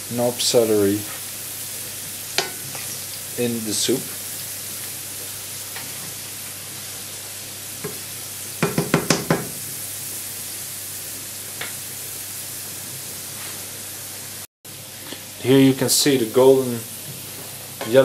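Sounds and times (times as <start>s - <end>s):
vegetables sizzling in oil: 0.0s - 18.0s
wooden spoon knocking pan: 8.6s - 9.6s.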